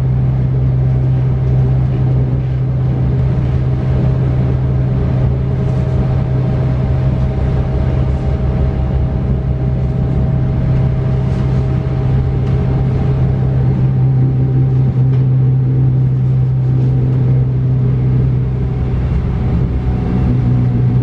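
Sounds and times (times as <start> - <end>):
train interior low hum: 0.0 - 21.0.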